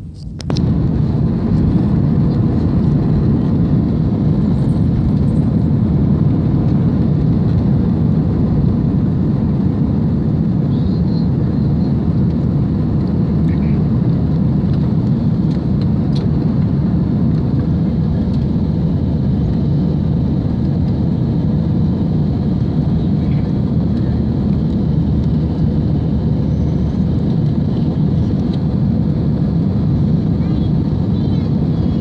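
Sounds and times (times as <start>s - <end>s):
airplane cabin engine rumble: 0.0s - 32.0s.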